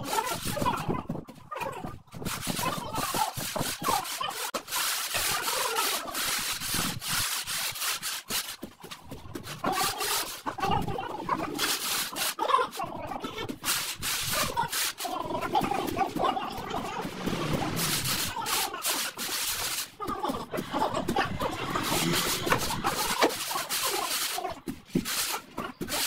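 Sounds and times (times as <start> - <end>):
screed bar scraping floor: 2.1 - 26.0.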